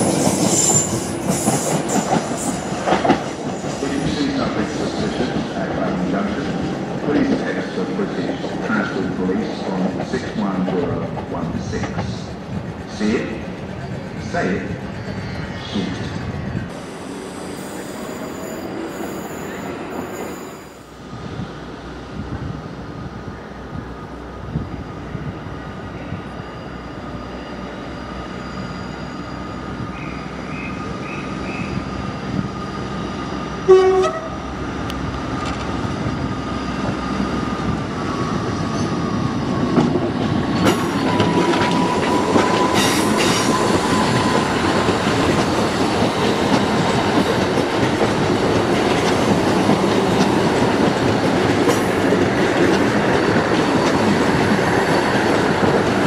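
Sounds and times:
train wheels rumbling on rails: 0.0 - 56.0
train horn blast: 33.7 - 34.4.

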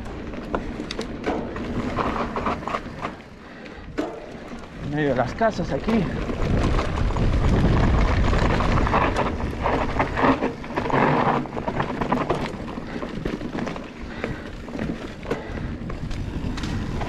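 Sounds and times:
tyre rumble: 0.0 - 3.3, 3.9 - 17.0
bike rattling: 0.0 - 17.0
wind buffeting microphone: 3.7 - 17.0.

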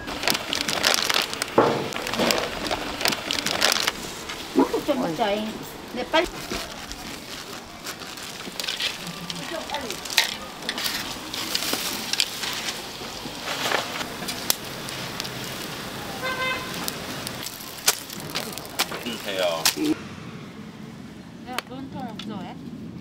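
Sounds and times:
background voices: 0.0 - 20.2
griddle sizzling: 0.0 - 21.2
metal utensils clattering: 6.4 - 12.9.

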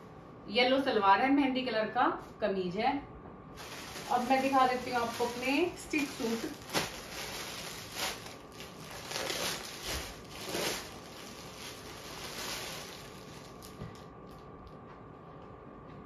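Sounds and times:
cloth rustling: 3.6 - 13.8.

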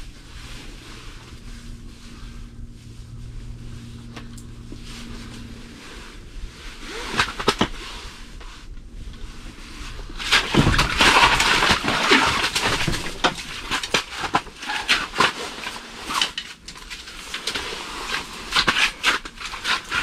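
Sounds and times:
clothing rustling: 0.0 - 13.6
knocks scrapes and crunching on ice: 10.2 - 20.0.

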